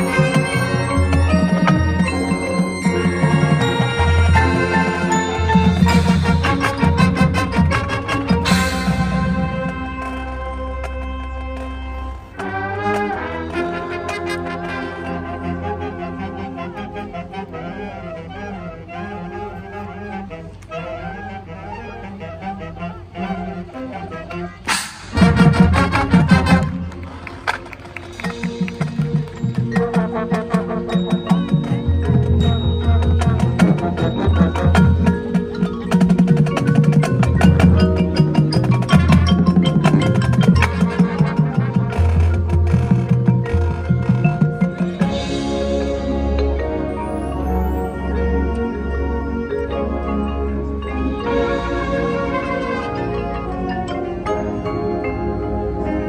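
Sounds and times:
rapid percussion strikes: 0:00.0 - 0:12.7, 0:24.7 - 0:48.1
mallet-keyboard notes: 0:00.0 - 0:17.6, 0:27.8 - 0:56.0
marching band brass chords: 0:00.0 - 0:56.0.

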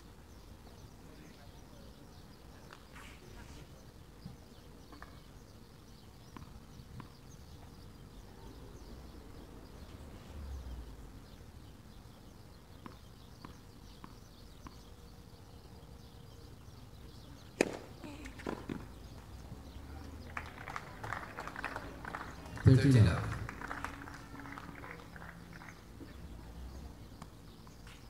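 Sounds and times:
tennis ball bouncing on court: 0:06.2 - 0:07.7, 0:12.7 - 0:15.0, 0:17.4 - 0:19.5
racket striking ball: 0:17.6 - 0:18.8.

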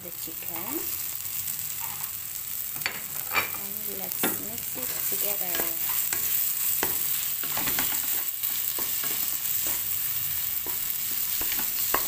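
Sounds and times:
frying sizzle: 0:00.0 - 0:12.0
spatula scraping a pan: 0:03.1 - 0:03.7.

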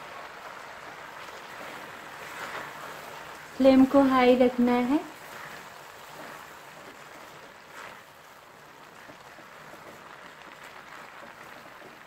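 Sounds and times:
carrot mixture sizzling and bubbling: 0:00.0 - 0:12.0
wooden spatula stirring: 0:00.0 - 0:12.0.

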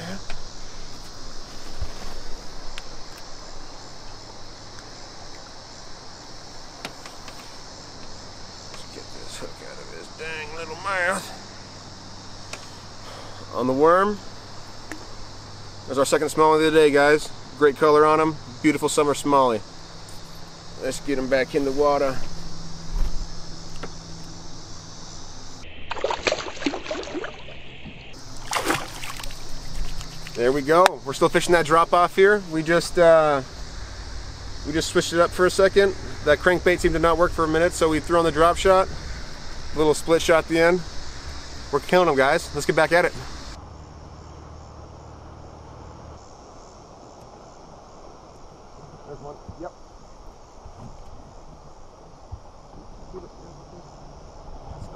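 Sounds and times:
insects chirring: 0:00.0 - 0:54.9
sharp water splash: 0:25.7 - 0:30.4
water splashing and sloshing: 0:25.8 - 0:30.4.

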